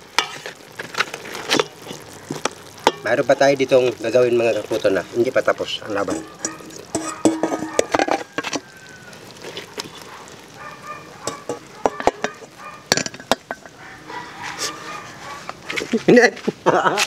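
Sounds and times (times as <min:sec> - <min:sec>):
metal ladle scraping a pot: 0:00.0 - 0:03.1, 0:05.8 - 0:08.7, 0:09.3 - 0:10.1, 0:11.2 - 0:15.9.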